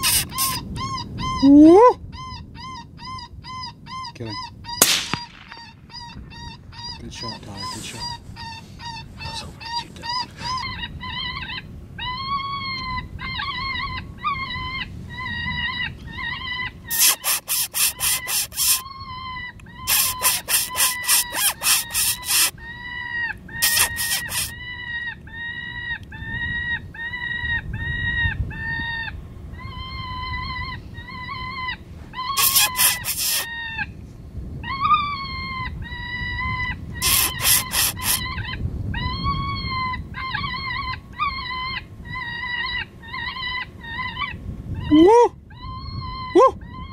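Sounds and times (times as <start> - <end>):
electronic animal distress cries: 0.0 - 1.0, 15.7 - 19.0, 19.6 - 24.6, 29.9 - 33.9, 37.0 - 44.3
harsh clicking chatter: 16.9 - 18.8, 19.9 - 22.5, 23.6 - 24.5, 32.4 - 33.5, 37.0 - 38.2.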